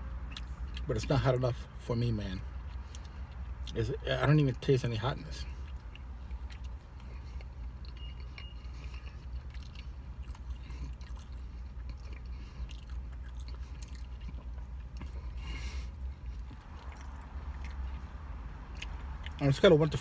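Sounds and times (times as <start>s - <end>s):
person chewing: 0.0s - 0.9s, 2.4s - 4.0s, 5.3s - 19.5s
low hum inside a car: 0.0s - 20.0s
wet mouth clicks and smacks: 16.4s - 19.4s.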